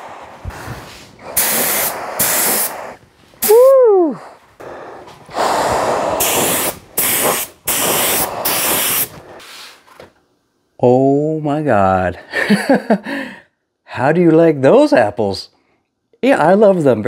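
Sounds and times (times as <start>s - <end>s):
paint spray gun hissing: 0.0s - 3.6s, 4.6s - 9.8s.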